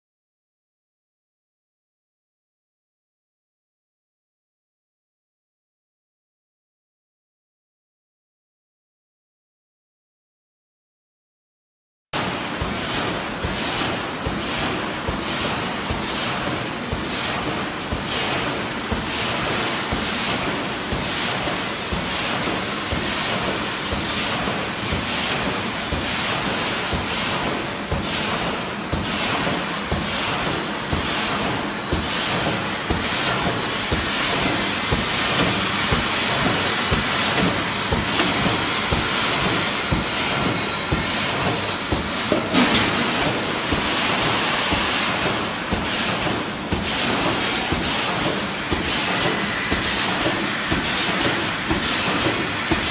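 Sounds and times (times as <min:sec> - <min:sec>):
constant machine noise: 0:12.2 - 0:52.9
welding machine clatter: 0:12.2 - 0:52.9.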